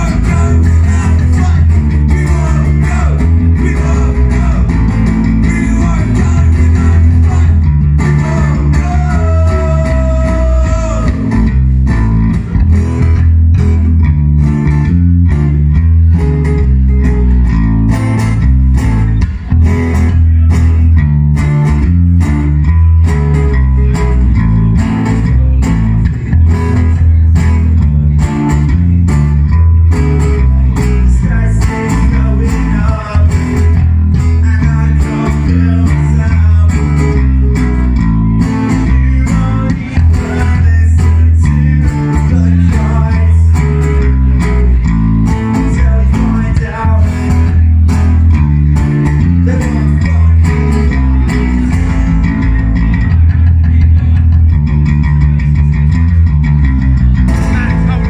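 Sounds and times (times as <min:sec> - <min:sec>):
person singing: 0:00.0 - 0:11.6, 0:29.8 - 0:47.6, 0:48.8 - 0:54.4
bass guitar line: 0:00.0 - 0:58.0
rock band playing: 0:00.0 - 0:58.0.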